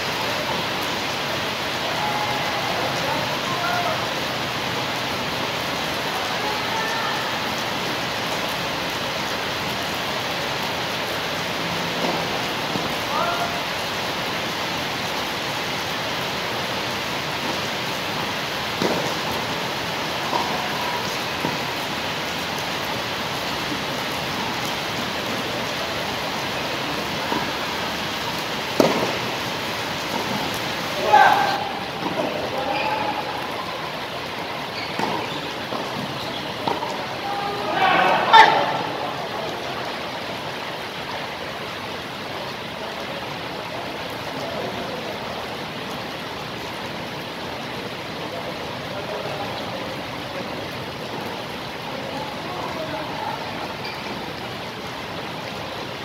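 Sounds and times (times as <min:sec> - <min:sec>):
tennis racket hitting ball: 0:28.8 - 0:29.2.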